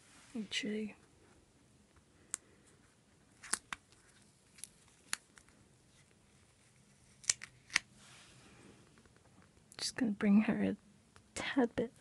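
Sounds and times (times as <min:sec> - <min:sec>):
paper sticker peeling crackles: 0:06.8 - 0:07.8.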